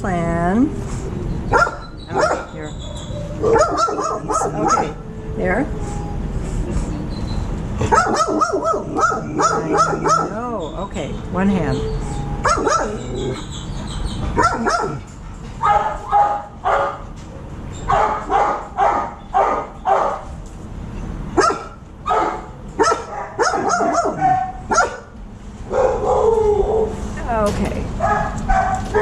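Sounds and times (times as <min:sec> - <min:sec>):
dog barking: 0:01.5 - 0:05.0, 0:07.8 - 0:10.4, 0:12.4 - 0:13.1, 0:14.4 - 0:17.1, 0:17.9 - 0:20.3, 0:21.4 - 0:25.1, 0:25.7 - 0:27.0, 0:28.0 - 0:29.0.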